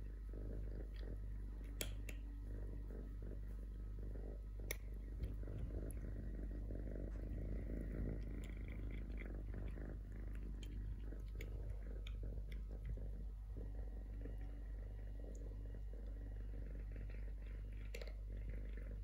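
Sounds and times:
purring: 0.0s - 19.0s
kitten crunching dry food: 4.6s - 13.2s.

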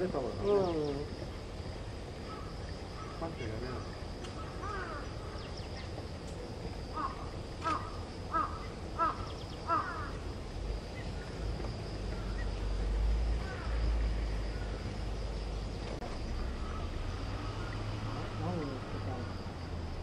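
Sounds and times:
crow cawing: 4.4s - 5.4s, 6.9s - 10.2s, 13.4s - 13.8s, 16.6s - 17.9s.

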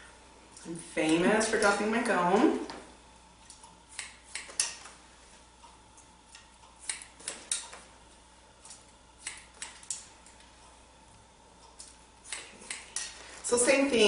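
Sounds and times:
scissors snipping hair: 3.4s - 4.9s, 6.0s - 7.8s, 8.6s - 10.5s, 11.6s - 13.2s.

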